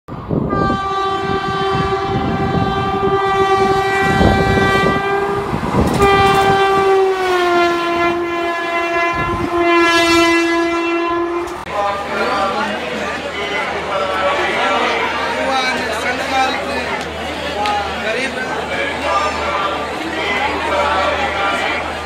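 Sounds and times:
train horn blasts: 0:00.5 - 0:11.7
train wheels clattering on track: 0:05.6 - 0:06.9.

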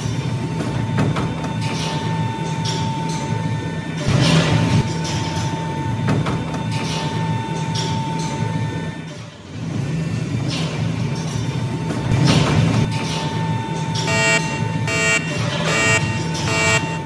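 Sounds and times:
low machine hum: 0:11.8 - 0:17.0
electronic beeps: 0:14.1 - 0:17.0.

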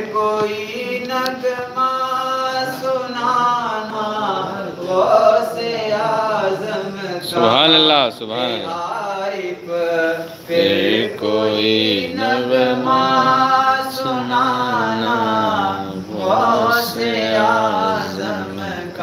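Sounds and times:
man chanting: 0:00.0 - 0:19.0.

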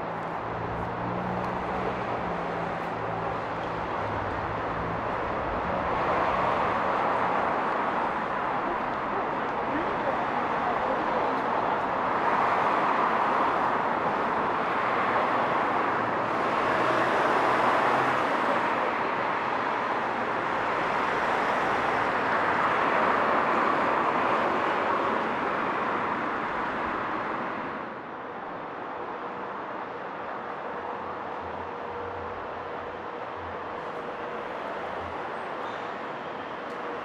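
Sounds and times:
passing road traffic: 0:00.0 - 0:37.0.

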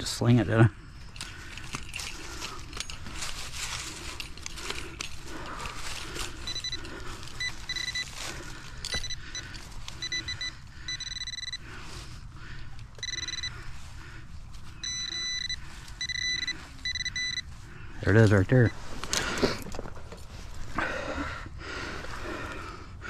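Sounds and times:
dirt rustling and scraping: 0:01.0 - 0:10.4
pinpointer beeping: 0:06.5 - 0:08.1, 0:08.9 - 0:11.7, 0:13.0 - 0:13.6, 0:14.8 - 0:17.5.

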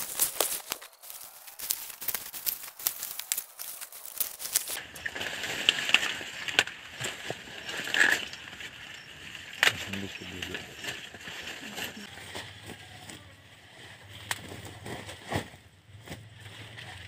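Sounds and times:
sharp cracks of corn picking: 0:00.0 - 0:13.2
dry corn leaves rustling: 0:00.0 - 0:15.6.

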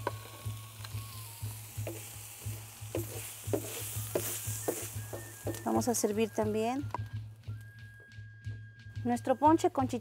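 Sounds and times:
food sizzling: 0:00.0 - 0:07.8
wooden spoon scraping a griddle: 0:01.9 - 0:05.9.

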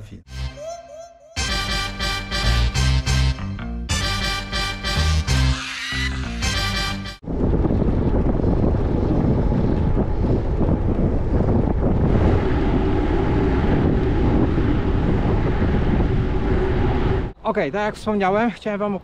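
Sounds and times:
wind buffeting microphone: 0:07.2 - 0:18.5.

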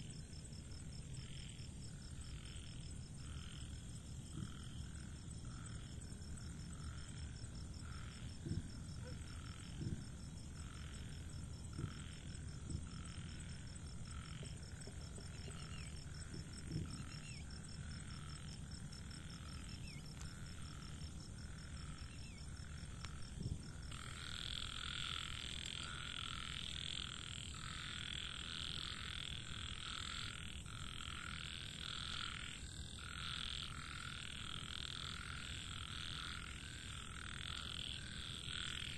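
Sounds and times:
frogs croaking: 0:00.0 - 0:38.9
high insect trill: 0:00.0 - 0:38.9
soft low thumps: 0:11.6 - 0:13.0.

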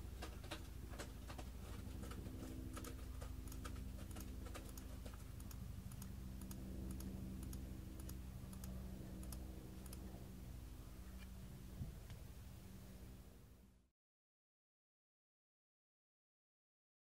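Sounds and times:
steady low hum: 0:00.0 - 0:13.9
computer controls clicking: 0:02.8 - 0:10.1.

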